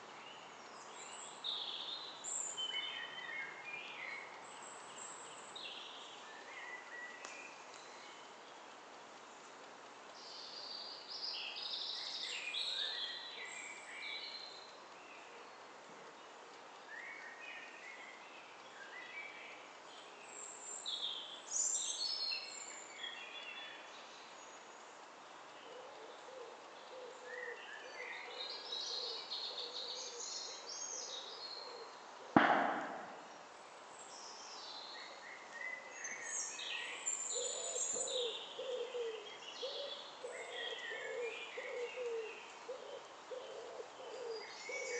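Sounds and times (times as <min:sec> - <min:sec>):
lower repeated bird call: 0:31.2 - 0:33.6
sharp knock: 0:32.4 - 0:33.5.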